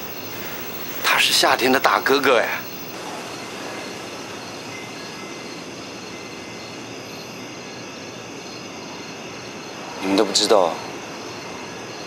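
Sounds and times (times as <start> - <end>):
faint high steady tones: 0.0 - 7.5
even background hiss: 0.0 - 12.0.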